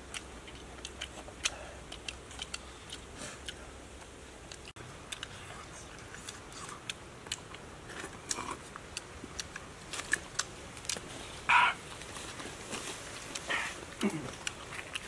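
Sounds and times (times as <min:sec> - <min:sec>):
chewing clicks and smacks: 0:00.0 - 0:11.1, 0:13.2 - 0:15.0.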